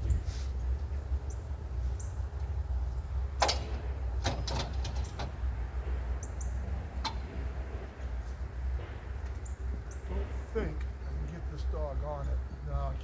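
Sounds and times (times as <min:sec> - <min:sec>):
steady low hum: 0:00.0 - 0:13.0
sharp knocks and clanks: 0:03.4 - 0:11.3.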